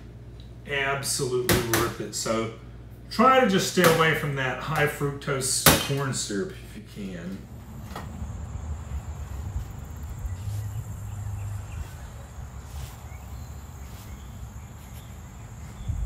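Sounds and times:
wind rumble on microphone: 7.7s - 13.8s, 14.4s - 16.0s
high-pitched insect trill: 8.2s - 16.0s.

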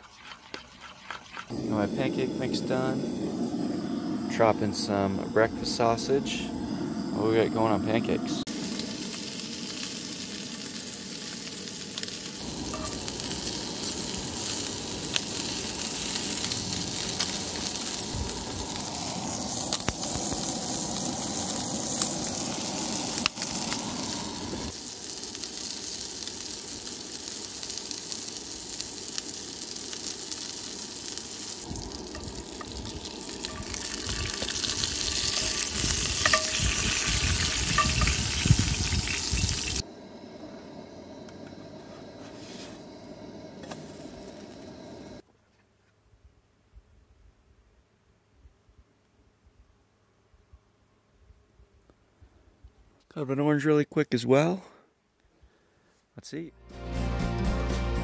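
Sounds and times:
sausages sizzling in a skillet: 1.4s - 39.9s.

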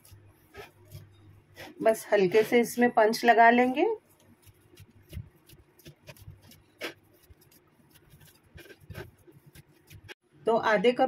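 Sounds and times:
hands kneading dough: 0.0s - 10.2s.

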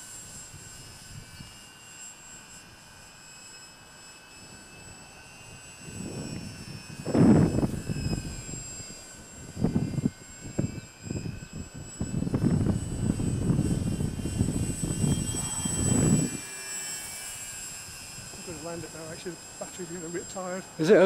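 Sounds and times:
model plane motor whine: 0.0s - 21.0s
gusty low rumbling: 7.0s - 8.5s, 9.6s - 16.4s.

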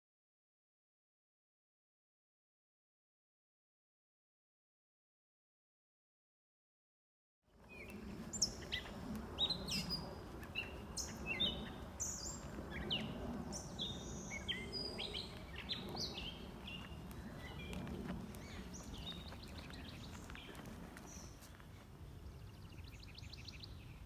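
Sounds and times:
birds chirping and singing: 7.6s - 24.0s
low background rumble: 7.6s - 24.0s.

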